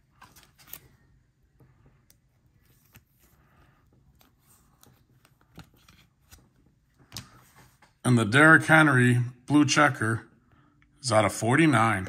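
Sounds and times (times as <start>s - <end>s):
trading cards clicking and rustling: 0.1s - 1.0s.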